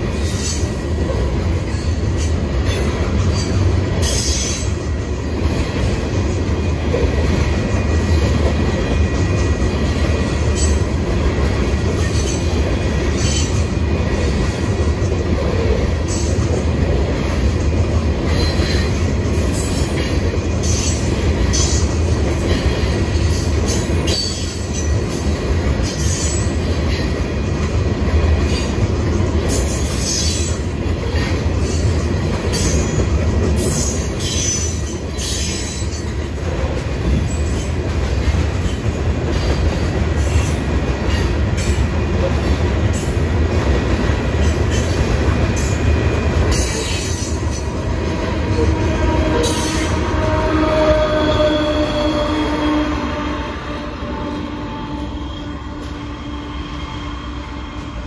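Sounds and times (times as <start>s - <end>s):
train wheels rumbling on rail: 0.0s - 58.0s
high-pitched wheel squeals: 48.6s - 53.2s.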